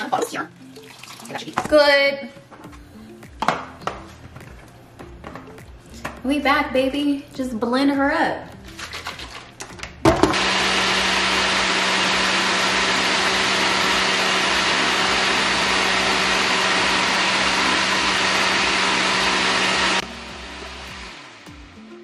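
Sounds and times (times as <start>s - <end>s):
blender running: 10.2s - 21.9s.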